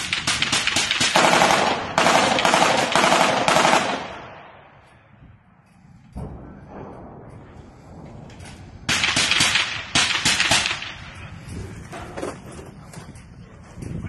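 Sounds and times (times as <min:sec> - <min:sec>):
automatic gunfire: 0:00.0 - 0:04.4, 0:08.9 - 0:11.0.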